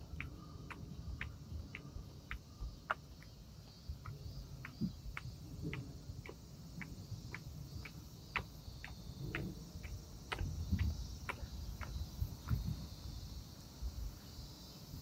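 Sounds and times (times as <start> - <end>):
footsteps on pavement: 0.0 - 13.0
cicadas singing: 0.0 - 15.0.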